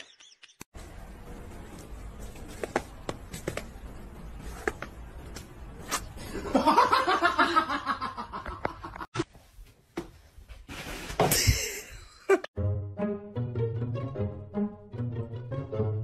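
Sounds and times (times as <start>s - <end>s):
person laughing: 11.3s - 12.5s.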